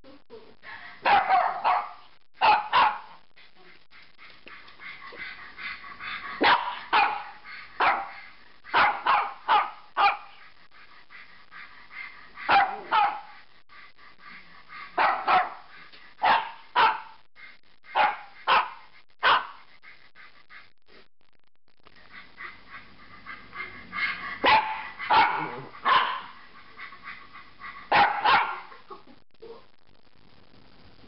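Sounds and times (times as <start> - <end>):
small dog barking: 1.0 - 3.2, 6.4 - 10.4, 12.5 - 13.4, 15.0 - 17.2, 17.9 - 19.7, 24.4 - 26.4, 27.9 - 28.8.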